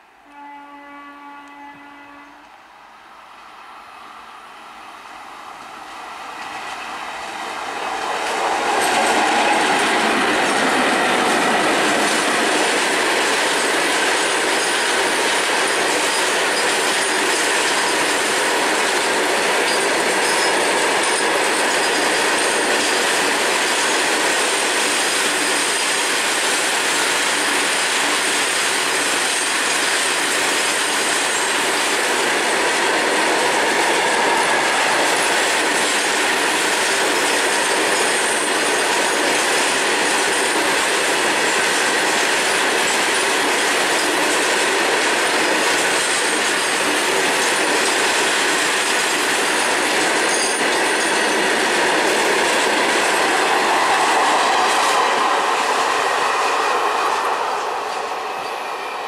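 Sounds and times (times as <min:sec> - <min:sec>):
freight train wheels on rails: 0:00.0 - 0:59.0
locomotive horn: 0:00.2 - 0:02.6.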